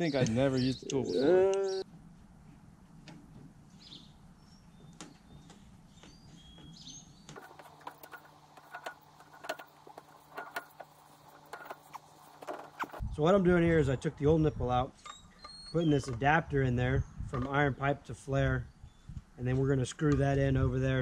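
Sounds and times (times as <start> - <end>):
faint bird chirps: 14.3 - 16.1.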